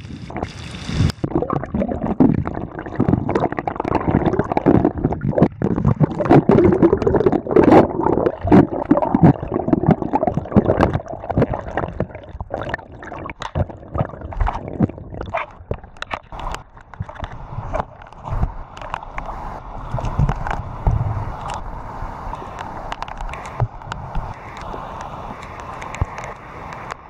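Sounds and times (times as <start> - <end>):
clicks and splashes: 0.0 - 20.6, 22.3 - 27.0
rainwater gurgling in gutter: 0.0 - 20.6.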